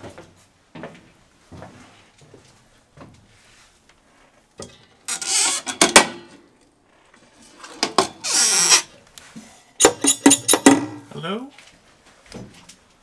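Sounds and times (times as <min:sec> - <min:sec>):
metal panel scraping: 0:05.1 - 0:05.9, 0:06.9 - 0:08.9.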